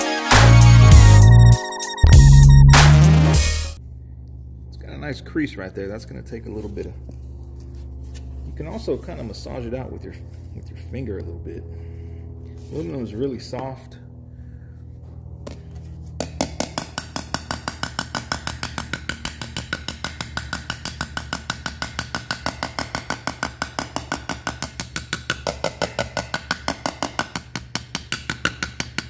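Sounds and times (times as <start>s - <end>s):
steady low hum: 2.0s - 28.9s
small hammer tapping on metal: 16.2s - 29.0s.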